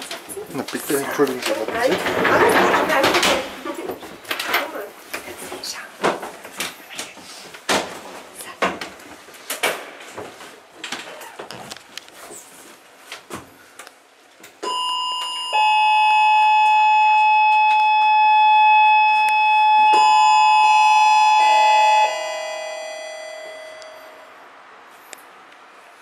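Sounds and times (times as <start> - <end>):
signal bell ringing: 14.6 - 24.5.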